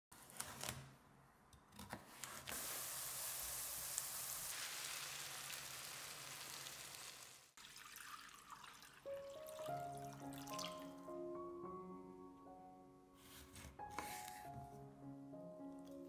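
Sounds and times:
vegetables sizzling in hot pan: 2.5s - 7.6s.

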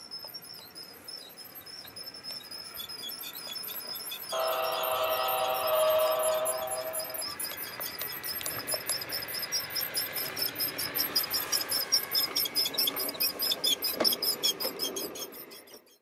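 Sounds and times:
faint steady whine: 0.0s - 11.6s
model train wheels clicking: 0.0s - 16.0s.

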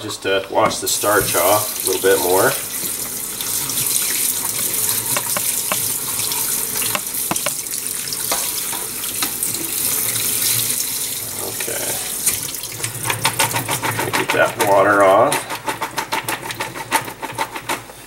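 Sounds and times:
faucet running into colander: 0.7s - 17.3s
light knocks of fries stirred: 3.9s - 7.6s.

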